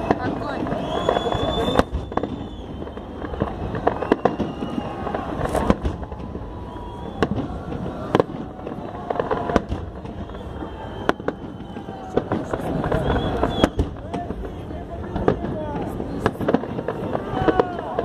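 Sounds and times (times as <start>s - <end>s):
firework shells bursting: 0.0s - 14.4s.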